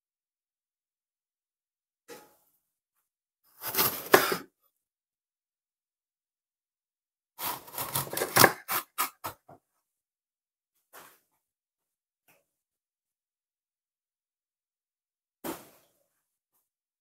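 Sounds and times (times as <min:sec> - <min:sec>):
knife cutting pepper crunching: 0:07.4 - 0:09.4.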